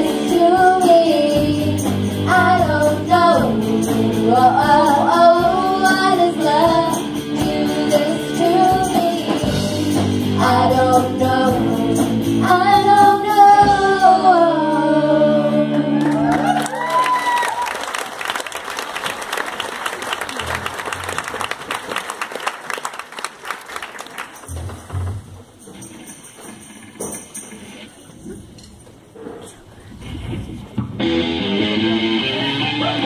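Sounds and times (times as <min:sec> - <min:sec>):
rock band playing: 0:00.0 - 0:14.0, 0:30.8 - 0:33.0
drums: 0:00.0 - 0:15.6, 0:24.4 - 0:33.0
girls singing together: 0:00.0 - 0:16.4.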